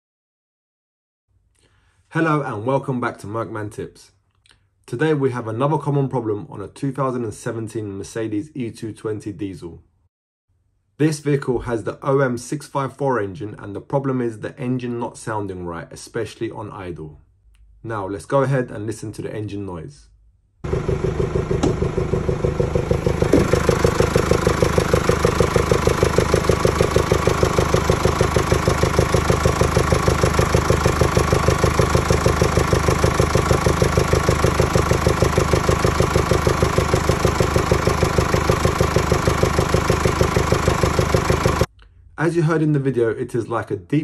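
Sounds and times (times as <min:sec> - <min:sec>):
diesel engine idling: 0:20.6 - 0:41.7.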